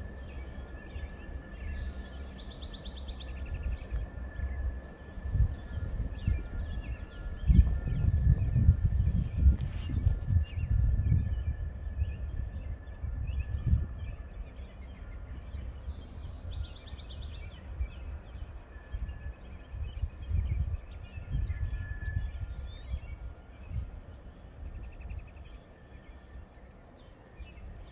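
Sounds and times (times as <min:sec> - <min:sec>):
small birds chirping: 0:00.1 - 0:27.9
wind on microphone: 0:03.4 - 0:25.6.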